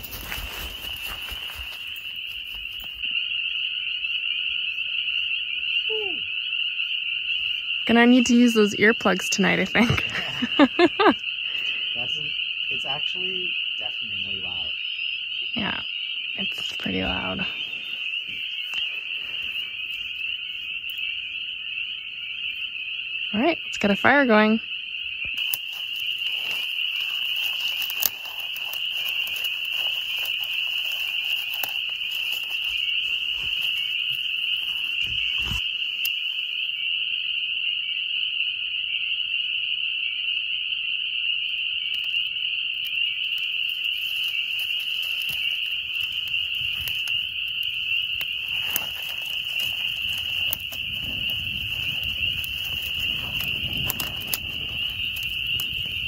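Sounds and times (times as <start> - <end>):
chorus of frogs peeping: 0.0 - 56.0.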